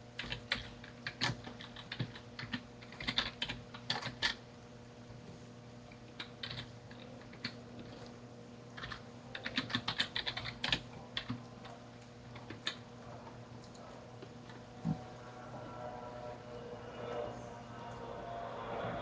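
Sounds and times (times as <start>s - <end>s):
low electrical hum: 0.0s - 19.0s
computer keyboard typing: 0.2s - 4.4s, 6.1s - 8.1s, 8.8s - 12.8s.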